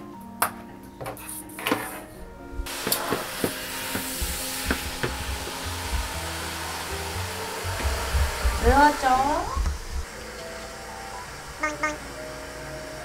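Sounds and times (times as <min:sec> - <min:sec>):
background music: 0:00.0 - 0:13.0
shower head spraying water: 0:02.6 - 0:13.0.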